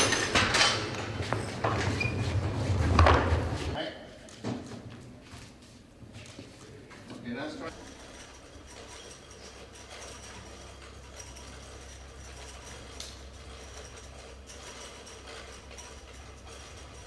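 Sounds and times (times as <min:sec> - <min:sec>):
hoist chain rapid clicking: 0:07.7 - 0:17.0.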